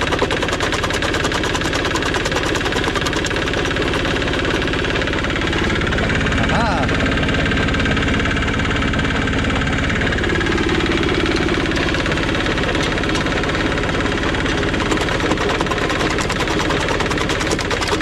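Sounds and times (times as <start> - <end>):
rock cracking in crusher: 0.0 - 5.9, 10.4 - 18.0
small engine droning: 0.0 - 18.0.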